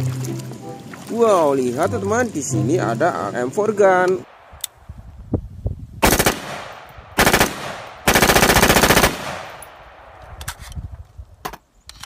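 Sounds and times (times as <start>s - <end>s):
automatic rifle bursts: 6.0s - 9.8s
gunfire echo: 6.0s - 10.2s.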